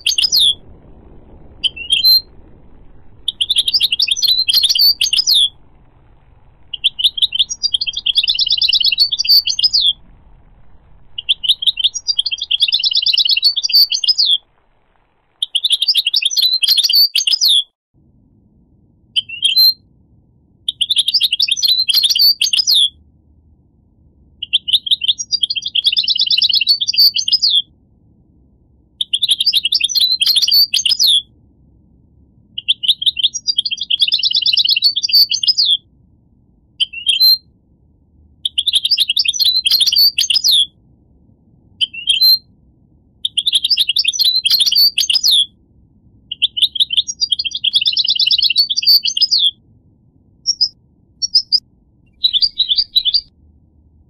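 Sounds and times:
goldfinch twittering song: 0:06.8 - 0:10.0, 0:11.2 - 0:14.4.

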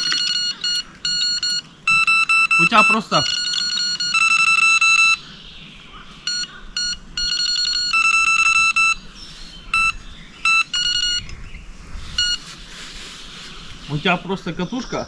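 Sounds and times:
electronic bite alarm beeping: 0:00.0 - 0:05.2, 0:06.3 - 0:09.1, 0:09.7 - 0:11.3, 0:12.2 - 0:12.4.

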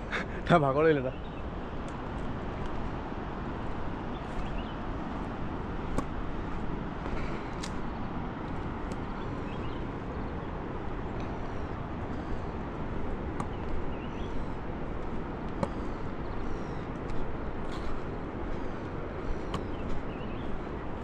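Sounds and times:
wind rumble on microphone: 0:00.0 - 0:21.0
footstep clicks: 0:01.7 - 0:21.0
faint bird chirps: 0:04.1 - 0:04.9, 0:13.4 - 0:14.6, 0:15.7 - 0:17.0, 0:17.7 - 0:21.0.

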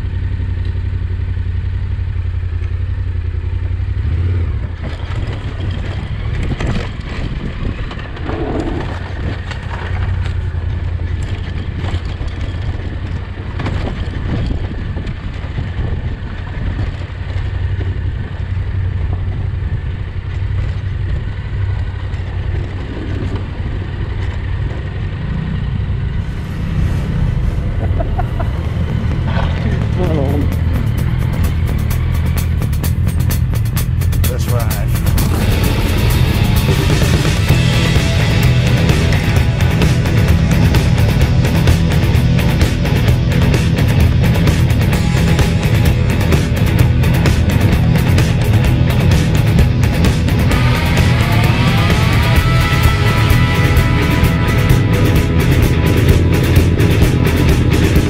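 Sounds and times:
motorcycle engine running: 0:00.0 - 0:58.0
bike knocks and rattles: 0:04.7 - 0:18.2.

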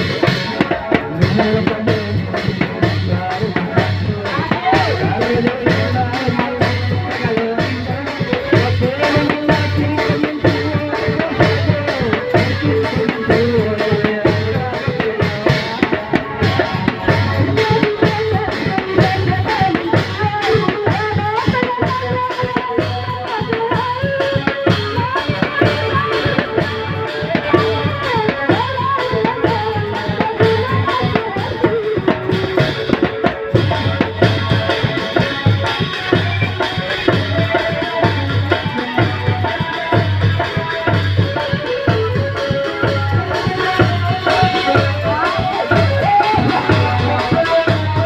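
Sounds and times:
drums beating: 0:00.0 - 0:48.0
man singing into a microphone: 0:00.0 - 0:48.0
wavering melody line: 0:41.2 - 0:48.0.

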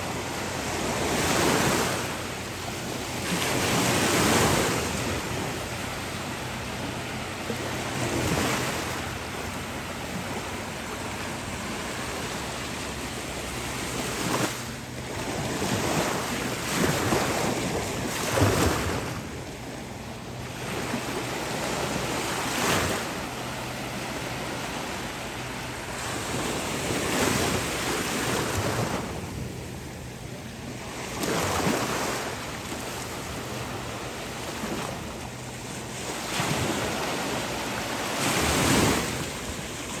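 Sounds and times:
ocean surf washing onto beach: 0:00.0 - 0:40.0.

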